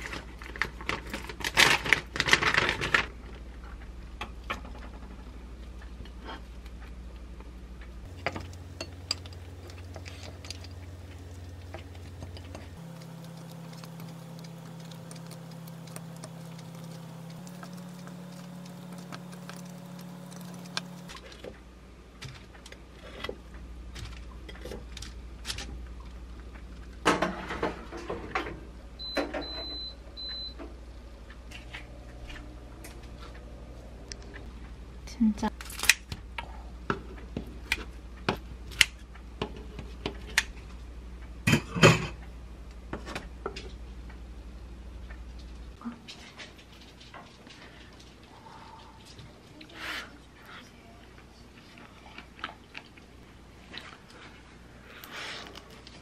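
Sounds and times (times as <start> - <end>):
low hum: 5.4 - 22.0, 28.4 - 35.6
hands tapping and rustling food: 8.1 - 21.6.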